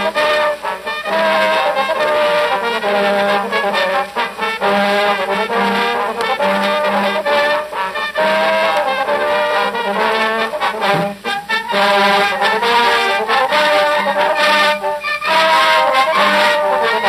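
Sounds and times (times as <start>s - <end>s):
brass soundtrack music: 0.0s - 17.0s
trombone playing a tune: 0.0s - 17.0s.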